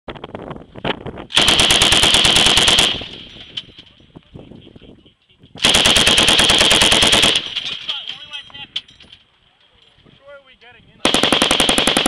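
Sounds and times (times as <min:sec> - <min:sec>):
machine gun automatic bursts: 0:01.3 - 0:03.3, 0:05.6 - 0:07.9, 0:11.0 - 0:12.0.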